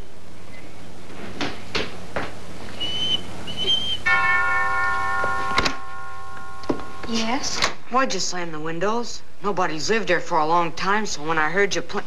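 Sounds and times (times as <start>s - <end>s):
high whistled notes: 2.8s - 4.2s
doorbell chime: 4.1s - 7.5s.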